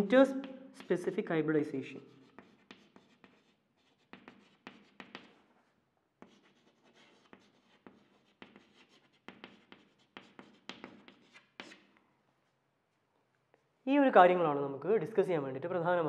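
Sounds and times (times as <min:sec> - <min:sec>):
chalk scratching on chalkboard: 0:02.0 - 0:11.9.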